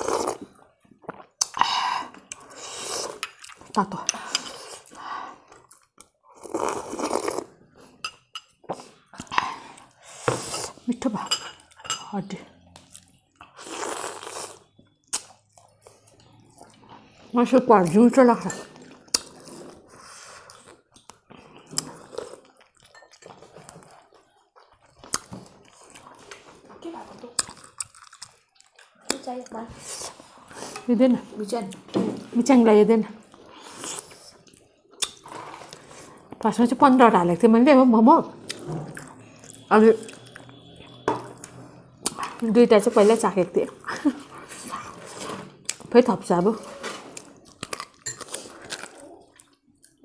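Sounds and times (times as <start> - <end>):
person chewing food: 0.0 - 10.8, 12.6 - 17.3, 18.8 - 26.6, 27.3 - 29.2, 33.2 - 36.4, 38.4 - 42.4, 43.7 - 45.9, 47.0 - 50.0
chewing and lip-smacking: 20.4 - 26.5, 27.4 - 29.2, 38.4 - 42.4, 47.1 - 50.0.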